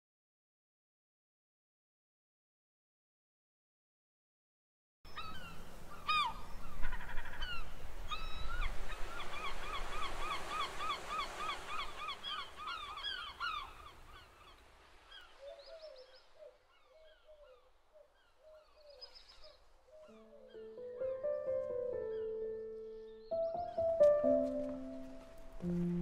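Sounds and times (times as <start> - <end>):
gulls calling: 5.1 - 26.0
waves washing: 7.8 - 16.4, 23.9 - 26.0
music: 20.1 - 26.0.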